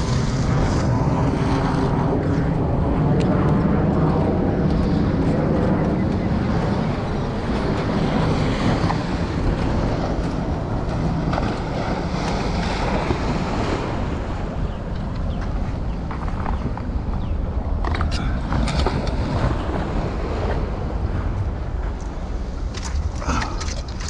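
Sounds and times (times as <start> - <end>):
wind buffeting microphone: 0.0 - 24.0.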